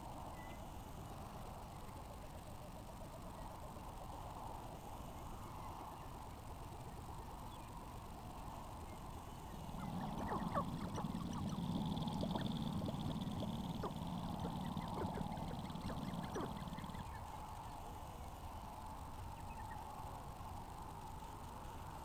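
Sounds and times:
grouse clucking and cackling calls: 9.5s - 17.7s
low rapid rattling: 9.7s - 17.2s.

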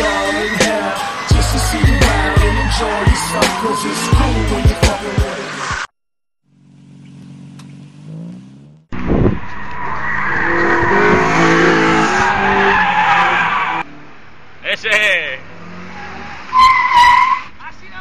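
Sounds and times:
tyre squeal on asphalt: 0.0s - 4.6s, 9.0s - 13.9s, 15.6s - 17.7s
car engine running: 6.5s - 9.6s.

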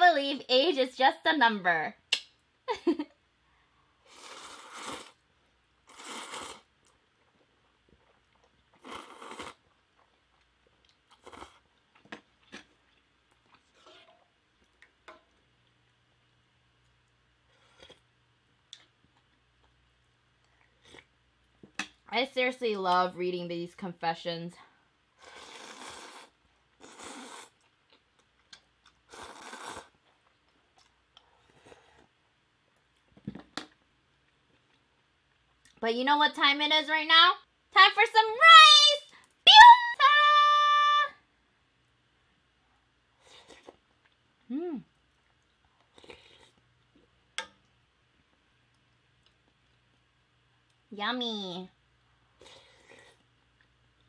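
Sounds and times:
person slurping noodles: 4.1s - 5.2s, 5.9s - 6.7s, 8.8s - 9.6s, 11.2s - 11.6s, 25.2s - 27.6s, 29.1s - 29.9s
noodles slurping: 5.9s - 6.7s, 29.1s - 30.0s
chewing: 45.0s - 47.1s.

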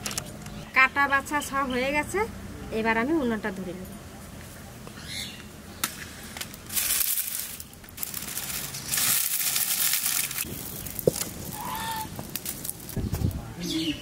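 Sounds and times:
dry leaves and twigs crackling: 5.8s - 13.8s.

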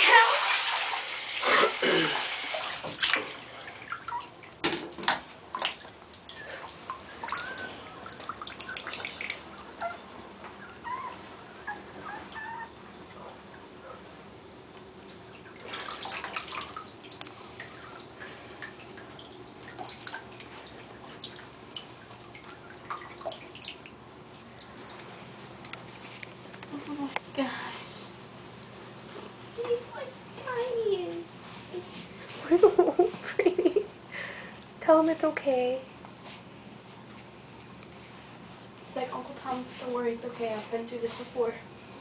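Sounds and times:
water splashing: 0.0s - 9.7s, 15.2s - 24.0s
puppy whimpering: 6.3s - 8.2s, 9.6s - 13.3s.

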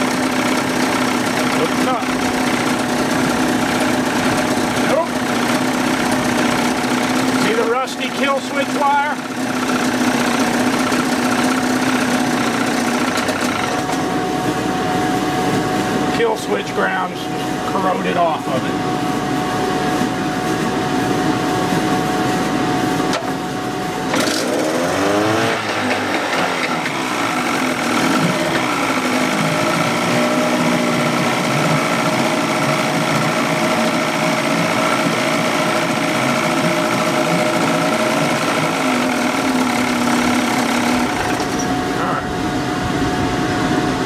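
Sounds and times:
two-stroke outboard motor running: 0.0s - 15.2s, 22.8s - 42.7s.

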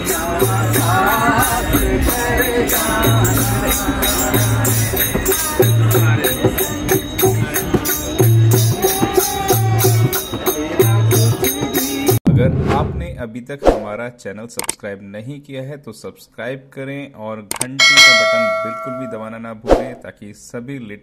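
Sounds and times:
group singing devotional song: 0.0s - 6.5s.

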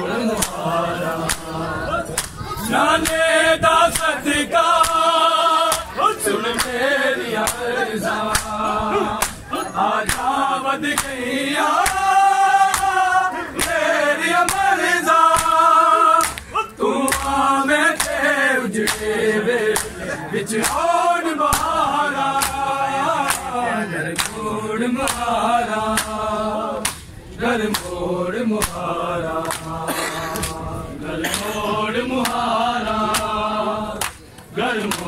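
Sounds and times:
men chanting in unison: 0.0s - 35.0s
hands slapping chests: 0.4s - 0.6s, 1.2s - 1.5s, 2.1s - 2.4s, 4.8s - 5.0s, 5.7s - 5.9s, 6.6s - 6.8s, 7.4s - 7.6s, 8.3s - 8.6s, 9.2s - 9.4s, 10.0s - 11.2s, 11.8s - 12.1s, 12.7s - 13.0s, 13.6s - 13.8s, 14.4s - 14.7s, 15.3s - 15.6s, 16.2s - 17.4s, 18.0s - 18.2s, 18.8s - 19.1s, 19.7s - 20.0s, 24.2s - 24.4s, 25.0s - 25.2s, 26.0s - 26.2s, 26.8s - 27.1s, 27.7s - 28.0s, 29.4s - 29.8s, 30.4s - 30.6s, 34.0s - 35.0s.

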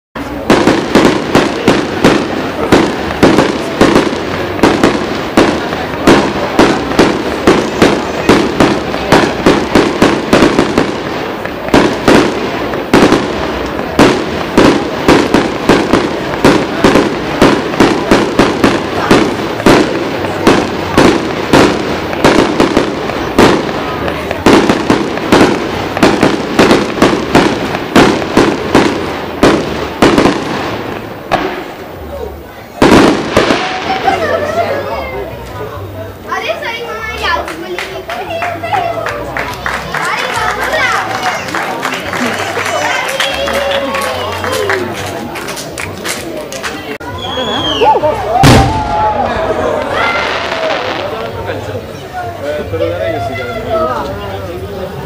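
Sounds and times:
fireworks bangs and crackling: 0.2s - 55.0s.

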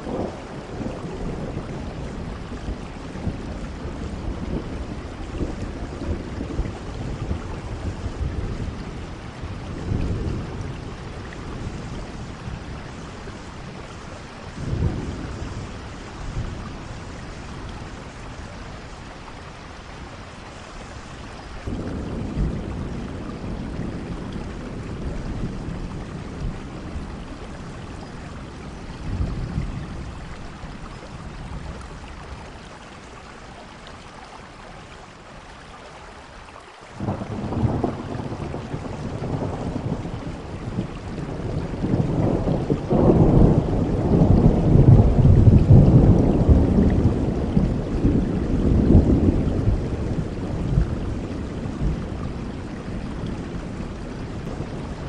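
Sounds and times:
thunder rumbling: 0.0s - 32.9s, 37.0s - 55.0s
heavy rain: 0.0s - 55.0s
loud thunderclap: 21.6s - 27.2s, 37.0s - 55.0s.

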